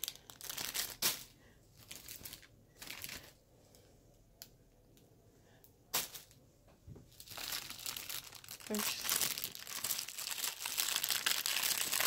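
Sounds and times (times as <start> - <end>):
plastic sleeve crinkling: 0.0 - 3.4, 7.1 - 12.0.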